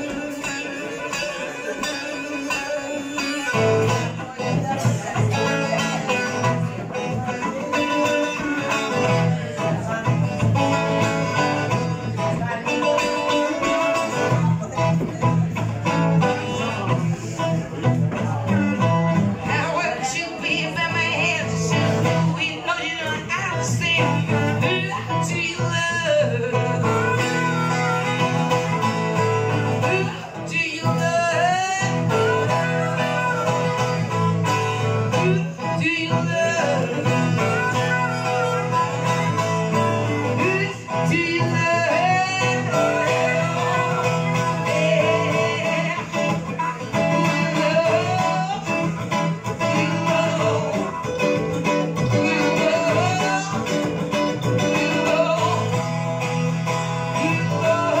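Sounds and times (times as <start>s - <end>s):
acoustic guitar strummed and picked: 0.0s - 58.0s
woman singing into microphone: 0.0s - 58.0s.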